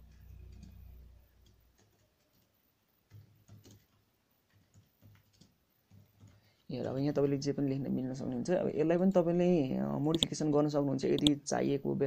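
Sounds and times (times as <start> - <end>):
low hum: 0.0 - 1.6
keyboard and mouse clicks: 0.0 - 7.4, 10.1 - 11.4.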